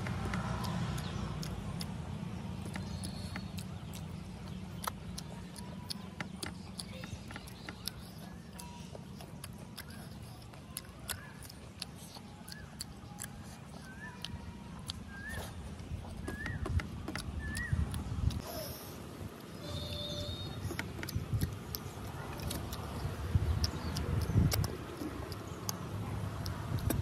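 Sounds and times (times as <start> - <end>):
person chewing noodles: 0.0 - 27.0
wet mouth clicks: 0.0 - 27.0.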